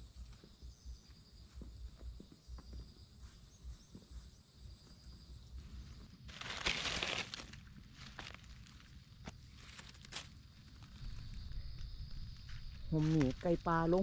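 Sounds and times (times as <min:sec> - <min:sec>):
high insect drone: 0:00.0 - 0:14.0
dry leaves rustling and crackling: 0:06.3 - 0:14.0.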